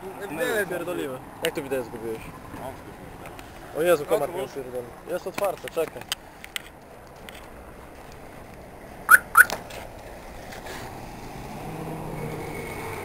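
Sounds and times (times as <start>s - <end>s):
street traffic hum: 0.0s - 13.0s
high whistle-like chirps: 9.1s - 9.6s.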